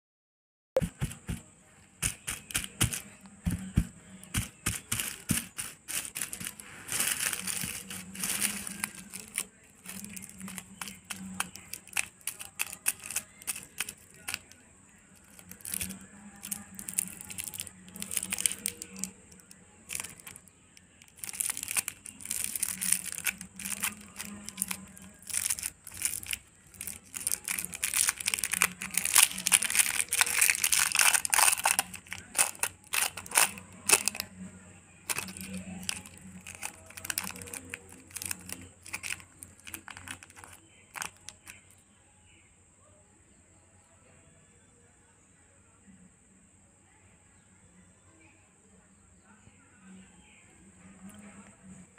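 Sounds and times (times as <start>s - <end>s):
cellophane wrapper crinkling: 2.0s - 14.6s, 15.2s - 34.3s, 35.1s - 41.6s
paper wrapper rustling: 2.0s - 14.6s, 15.2s - 20.4s, 21.0s - 34.3s, 35.1s - 41.6s.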